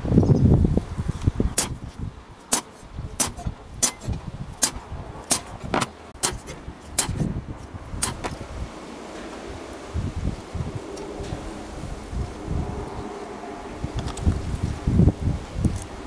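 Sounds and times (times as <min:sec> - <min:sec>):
hammer tapping metal punch: 0:02.5 - 0:07.2.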